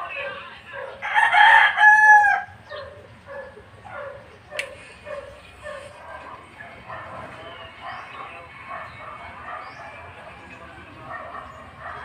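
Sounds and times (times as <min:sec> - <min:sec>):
rooster crowing: 0:00.2 - 0:02.7.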